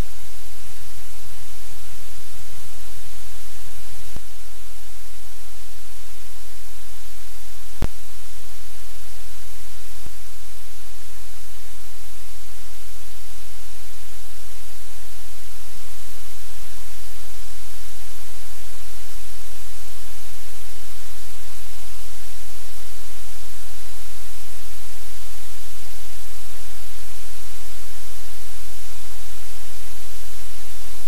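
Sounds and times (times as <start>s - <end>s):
static hiss: 0.0s - 31.0s.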